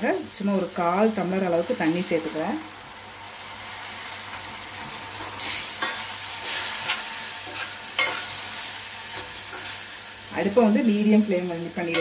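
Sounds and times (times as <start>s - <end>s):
masala sizzling in a pan: 0.0s - 12.0s.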